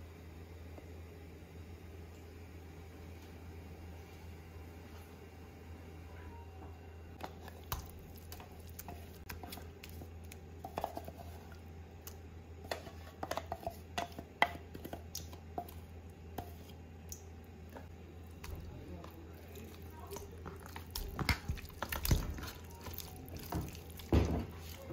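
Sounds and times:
low steady hum: 0:00.0 - 0:24.9
wooden spoon scraping paste: 0:07.2 - 0:11.6, 0:12.6 - 0:15.0.

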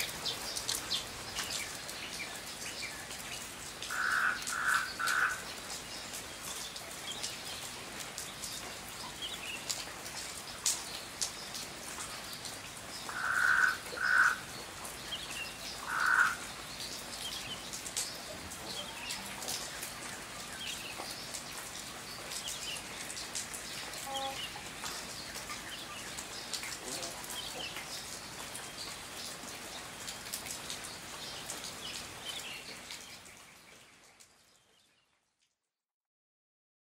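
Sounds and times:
rain pattering: 0:00.0 - 0:35.7
loud animal calls: 0:03.9 - 0:05.4, 0:13.1 - 0:14.4, 0:15.9 - 0:16.4.

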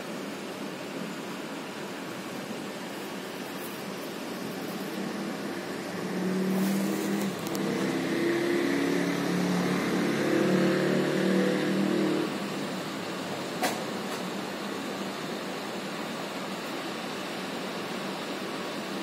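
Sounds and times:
traffic hum: 0:02.2 - 0:16.6
vehicle engine passing: 0:04.5 - 0:12.8.

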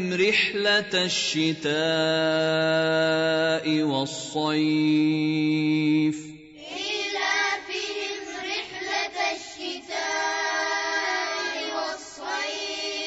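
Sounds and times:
children chanting recitation: 0:06.6 - 0:13.0.

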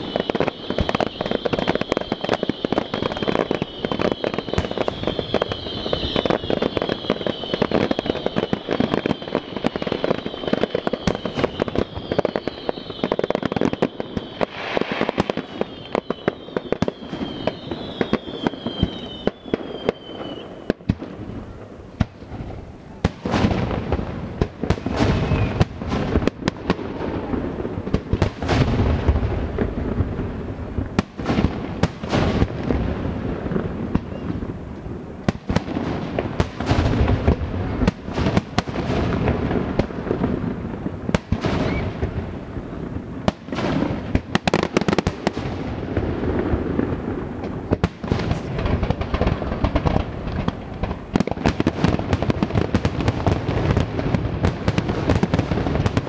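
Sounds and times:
fireworks shells bursting: 0:00.0 - 0:20.4
falling firework whistle: 0:00.0 - 0:29.7, 0:30.8 - 0:56.0.

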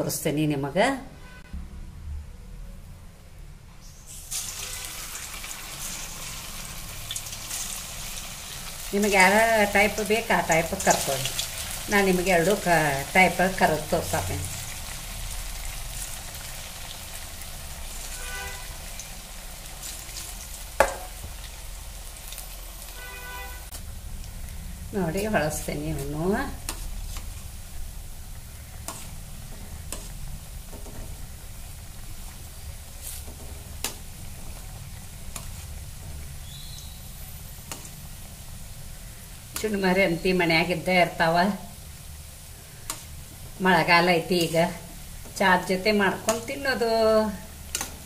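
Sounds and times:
oil sizzling and bubbling: 0:03.8 - 0:48.0
spoon clicking against pan: 0:47.7 - 0:48.0.

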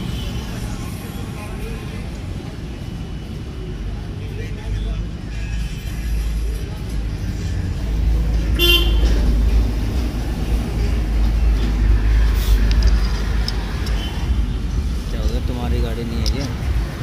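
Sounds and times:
road traffic rumble: 0:00.0 - 0:17.0
vehicle horn tooting: 0:08.6 - 0:09.1.

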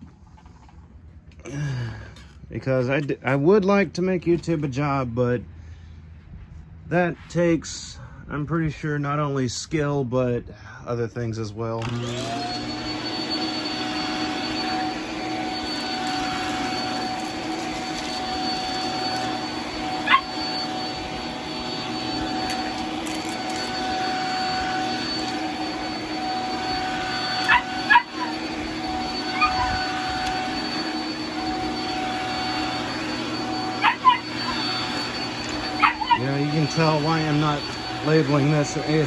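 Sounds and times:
vacuum cleaner running: 0:11.8 - 0:39.0
dog yipping: 0:20.0 - 0:20.6, 0:27.1 - 0:28.6, 0:29.2 - 0:30.1, 0:33.6 - 0:36.5.

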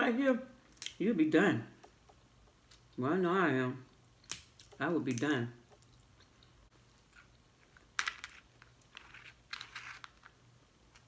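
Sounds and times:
crab shells cracking: 0:04.0 - 0:06.6.

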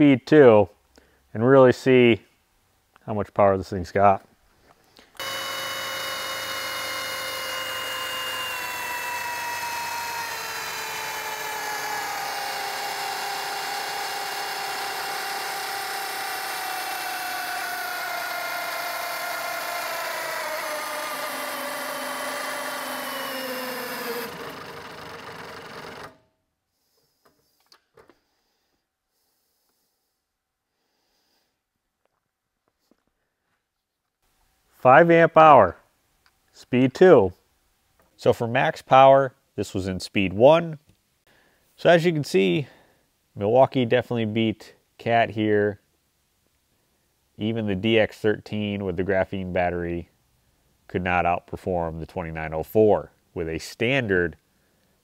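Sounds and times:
hammer drill motor whine: 0:05.2 - 0:26.3.

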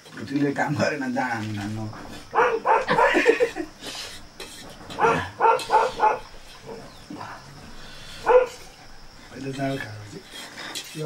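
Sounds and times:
dog barking: 0:02.3 - 0:03.2, 0:05.0 - 0:06.9, 0:08.2 - 0:08.7.

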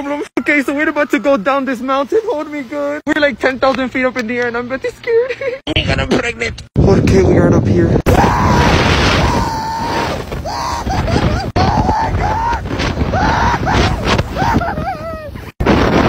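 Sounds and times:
person screaming: 0:08.1 - 0:15.2.

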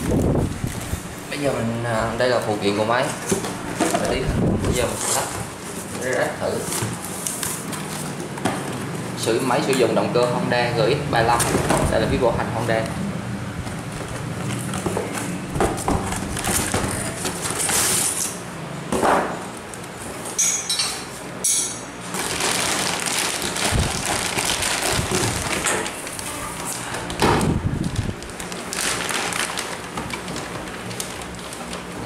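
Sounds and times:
plastic wrapping crinkling: 0:13.7 - 0:18.4, 0:22.1 - 0:32.0.

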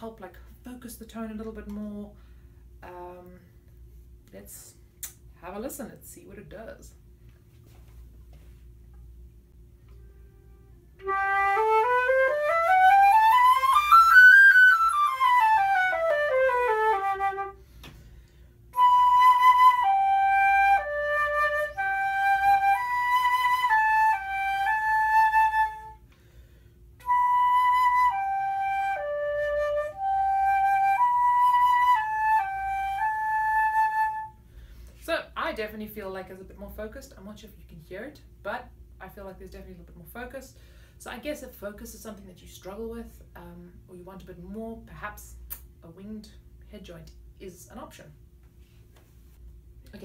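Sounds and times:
flute playing: 0:09.9 - 0:17.6, 0:18.7 - 0:26.0, 0:27.0 - 0:34.4.

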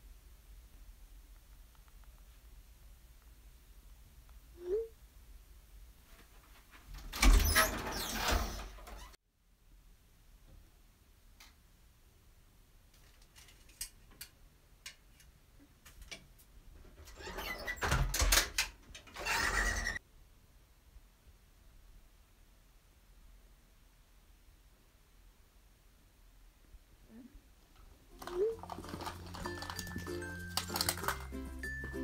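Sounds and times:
louvered closet doors rattling: 0:06.9 - 0:09.2, 0:16.8 - 0:20.0.

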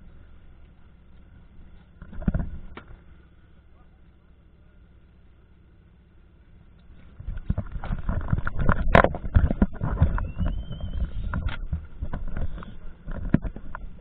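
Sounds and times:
low rumble: 0:00.0 - 0:14.0
knocks and rubbing of diving gear: 0:07.2 - 0:14.0.

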